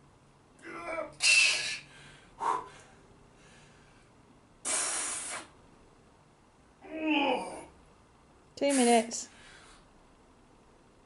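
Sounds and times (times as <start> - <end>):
man grunting: 0.6 - 1.2, 6.9 - 7.7
man breathing hard: 1.2 - 5.5.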